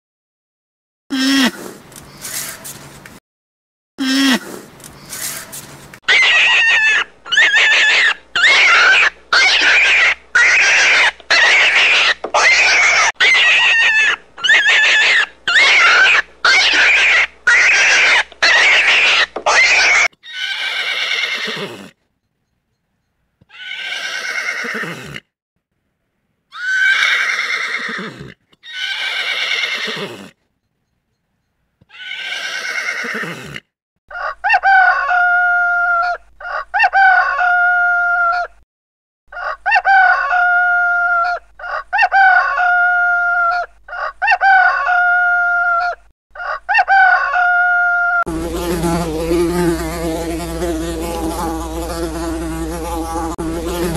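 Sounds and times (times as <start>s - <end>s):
rapid short loud animal calls: 4.3s - 21.9s, 23.5s - 25.2s, 26.5s - 30.3s, 31.9s - 33.6s
long downward trailing animal calls: 6.1s - 21.5s.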